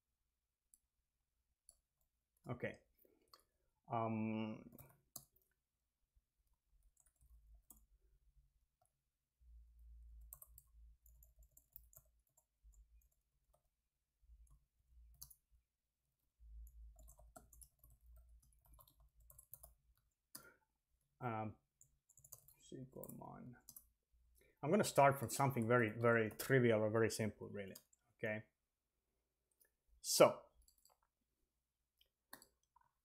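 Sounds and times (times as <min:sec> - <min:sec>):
keyboard typing: 0:04.5 - 0:05.6, 0:06.4 - 0:09.0, 0:09.7 - 0:20.5, 0:21.7 - 0:24.0, 0:30.6 - 0:31.2, 0:32.0 - 0:33.0.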